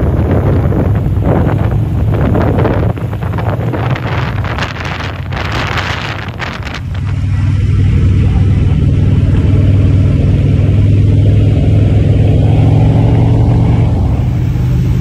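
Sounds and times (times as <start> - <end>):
motorcycle engines droning: 0.0 - 15.0.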